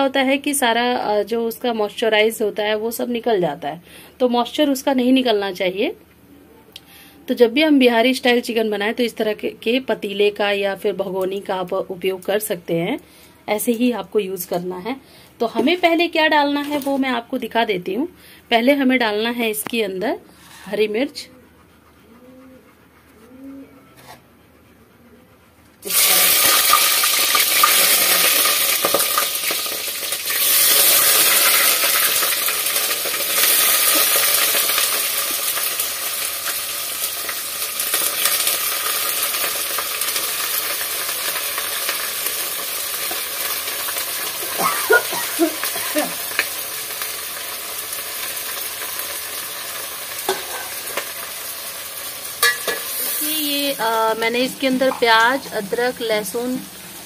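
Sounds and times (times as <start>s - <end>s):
vegetables sizzling in hot oil: 25.8s - 57.0s.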